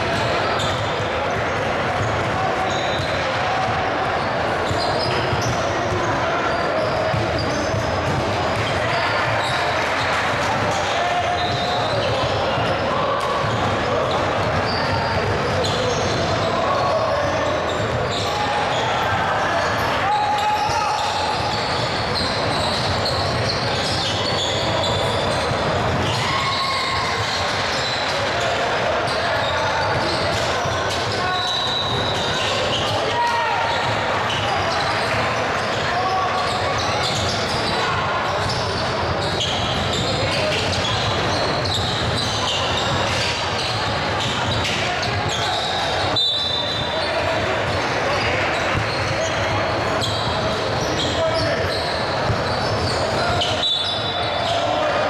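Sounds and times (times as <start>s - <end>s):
shoe squeaks on court: 4.6s - 12.8s, 13.4s - 19.1s, 20.1s - 54.9s.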